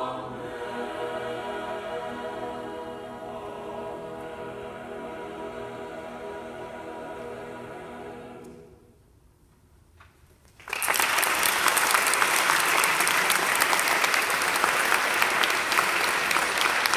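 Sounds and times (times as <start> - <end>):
choir singing: 0.0 - 9.0
audience applause: 10.6 - 16.9.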